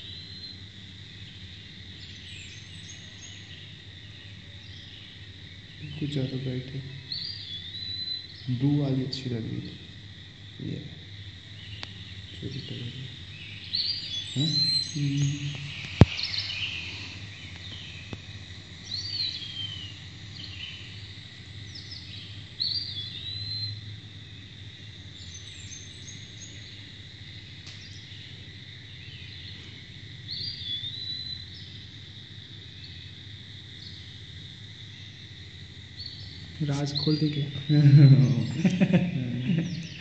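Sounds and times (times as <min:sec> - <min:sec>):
steady high-pitched hum: 0:00.0 - 0:40.0
faint chirping whistles: 0:01.3 - 0:09.8, 0:10.6 - 0:23.9, 0:29.0 - 0:31.8, 0:35.9 - 0:38.7.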